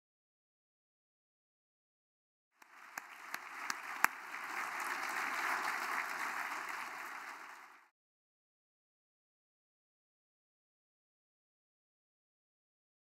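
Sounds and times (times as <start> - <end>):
audience applauding: 2.6 - 7.9.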